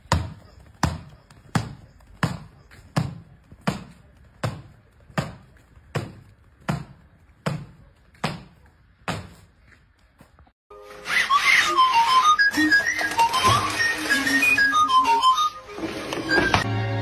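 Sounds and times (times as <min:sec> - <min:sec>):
hands and feet thudding on concrete: 0:00.0 - 0:10.6.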